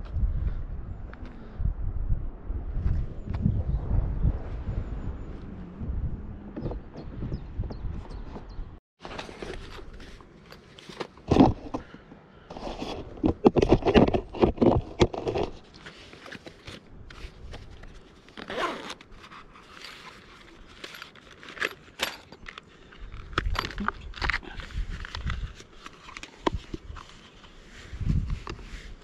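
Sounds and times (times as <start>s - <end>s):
rustling and scraping of gear: 9.0s - 29.0s
zips pulled open and closed: 18.3s - 22.4s.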